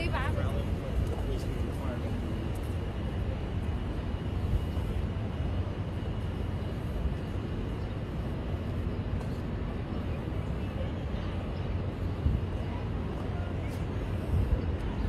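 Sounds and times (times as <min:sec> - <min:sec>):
city traffic rumble: 0:00.0 - 0:15.0.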